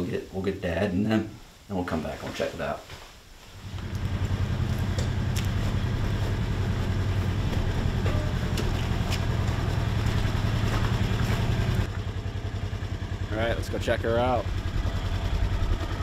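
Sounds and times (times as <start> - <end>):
vehicle engine droning: 3.6 - 16.0.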